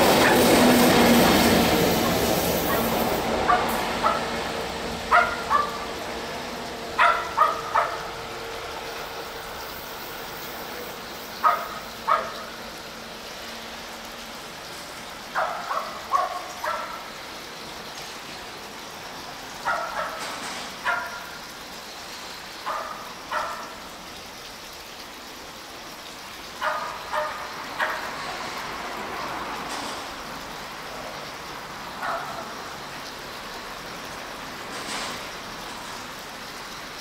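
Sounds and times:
passing electric locomotive: 0.0s - 25.0s, 25.8s - 37.0s
animal calling in sharp bursts: 1.9s - 6.1s, 6.9s - 8.3s, 11.2s - 12.6s, 15.3s - 17.2s.

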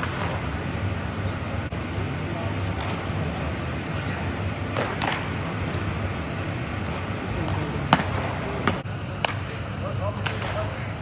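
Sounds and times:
sports hall hum: 0.0s - 11.0s.

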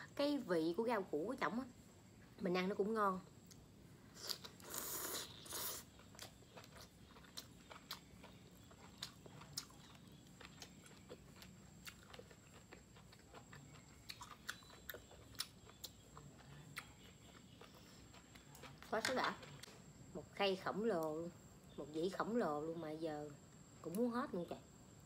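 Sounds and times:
wet chewing clicks and crunches: 4.2s - 19.7s.

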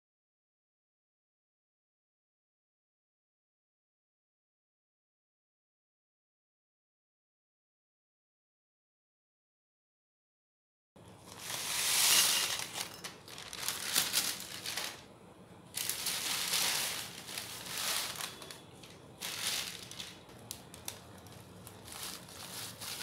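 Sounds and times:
baking paper crinkling: 11.2s - 15.1s, 15.8s - 23.0s.

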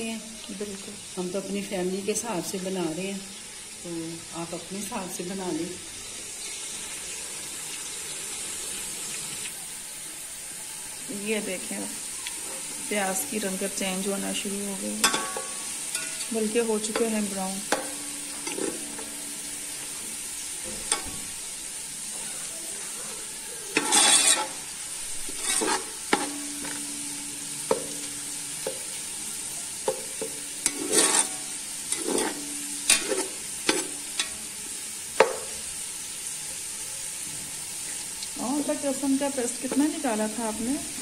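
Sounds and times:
onions sizzling in a pot: 0.0s - 41.0s
metal spoon scraping a pot: 15.0s - 19.2s, 23.7s - 27.9s, 29.8s - 34.5s.

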